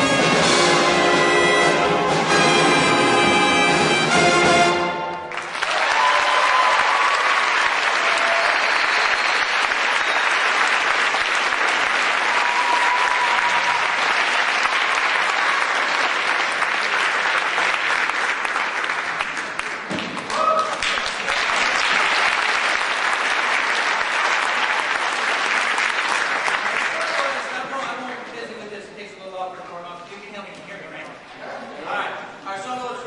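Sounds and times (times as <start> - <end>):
big band holding a chord: 0.0 - 5.4
audience applause: 5.1 - 28.2.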